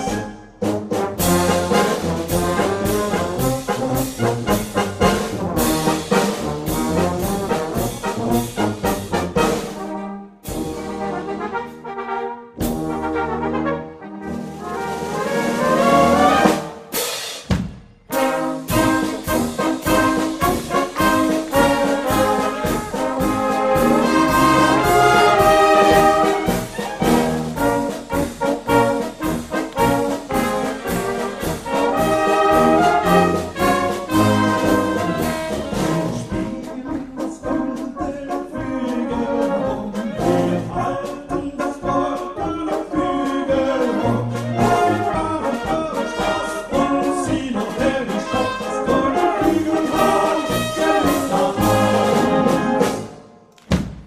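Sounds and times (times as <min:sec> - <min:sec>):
brass band playing: 0:00.0 - 0:53.5
drum kit beat: 0:01.0 - 0:09.8, 0:16.2 - 0:39.0.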